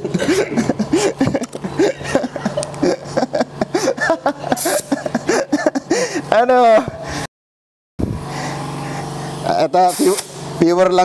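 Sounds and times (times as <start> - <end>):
people talking and chuckling: 0.0 - 6.3.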